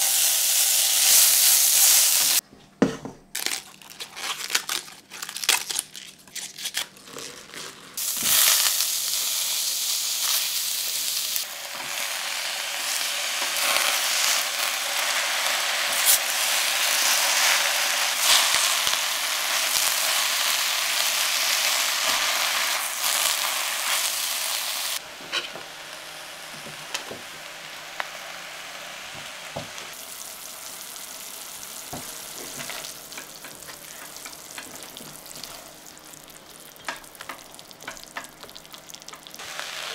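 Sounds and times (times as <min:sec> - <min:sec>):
vegetables sizzling in a frying pan: 0:00.0 - 0:02.4, 0:08.0 - 0:39.9
leaves crinkling and tearing: 0:03.3 - 0:08.7.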